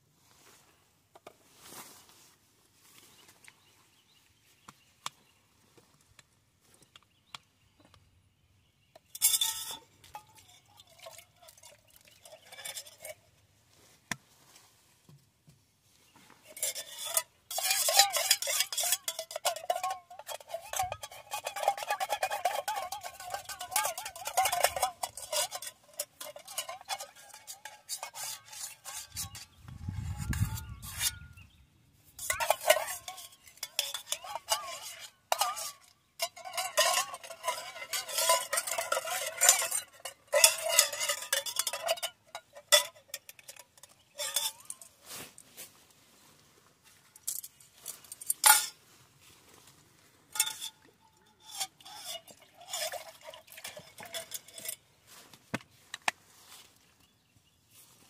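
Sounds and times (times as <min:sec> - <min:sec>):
metal spoon scraping a pot: 0:09.0 - 0:13.4, 0:16.4 - 0:45.0, 0:47.2 - 0:48.8, 0:50.3 - 0:54.8.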